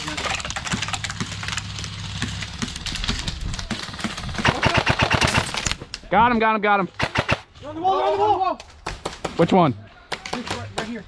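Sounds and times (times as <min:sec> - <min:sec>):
airsoft gunshots: 0:03.7 - 0:05.6, 0:07.0 - 0:07.5.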